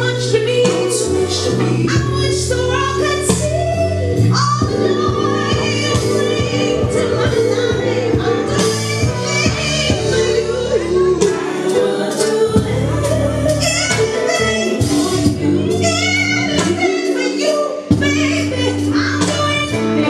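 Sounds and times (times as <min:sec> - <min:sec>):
song with sung vocals: 0:00.0 - 0:20.0.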